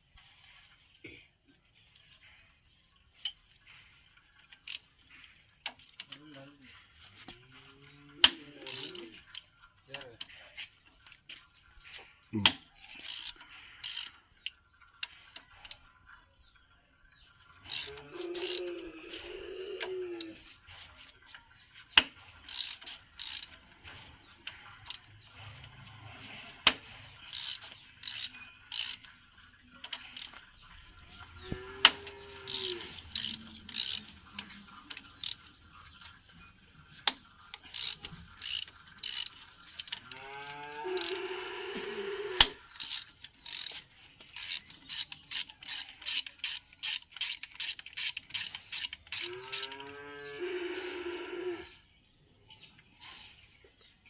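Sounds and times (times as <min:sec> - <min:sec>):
ratchet wrench clicking: 0:13.0 - 0:14.2, 0:22.0 - 0:23.6, 0:26.6 - 0:29.1, 0:32.0 - 0:35.5, 0:37.0 - 0:40.0, 0:42.4 - 0:49.8.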